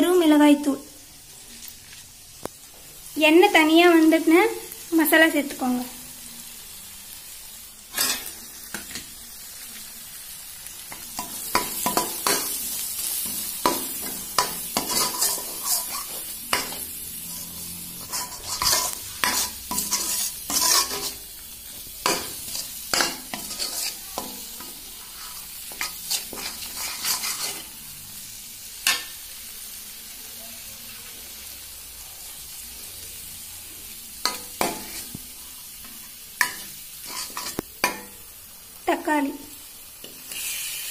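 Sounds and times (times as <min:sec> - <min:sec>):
food sizzling in oil: 0:00.0 - 0:40.9
spatula scraping a pan: 0:07.9 - 0:09.2, 0:10.9 - 0:27.8, 0:34.2 - 0:38.2.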